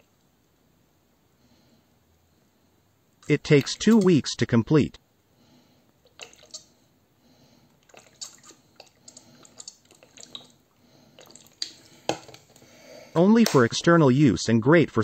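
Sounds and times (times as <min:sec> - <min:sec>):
liquid dripping into glass jar: 0:07.8 - 0:10.6, 0:11.2 - 0:12.4.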